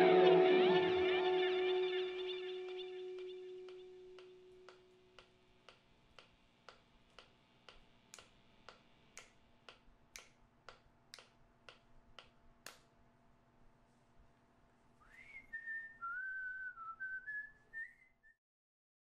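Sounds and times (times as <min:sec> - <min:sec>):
effects-laden guitar note: 0:00.0 - 0:04.7.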